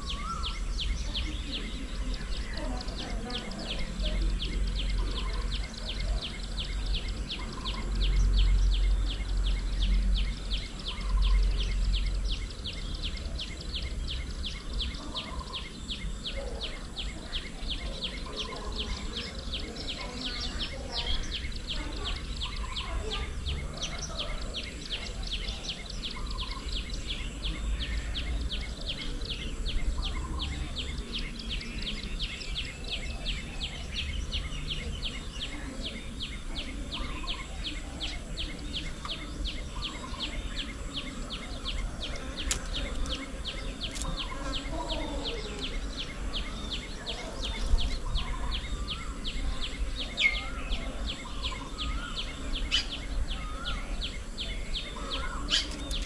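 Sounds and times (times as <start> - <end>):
insect chirping: 0.0 - 56.0.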